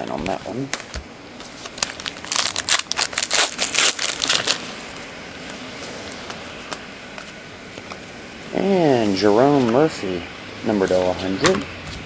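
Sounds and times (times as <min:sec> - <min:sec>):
plastic wrapper crinkling and tearing: 0:01.4 - 0:05.0.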